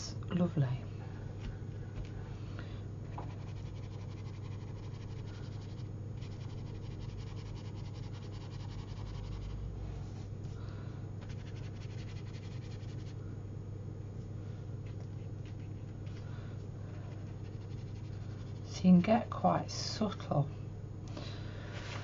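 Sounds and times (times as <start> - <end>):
low electrical hum: 0.0 - 22.0
brush scratching on paper: 3.2 - 9.6, 11.3 - 13.2, 17.1 - 18.8.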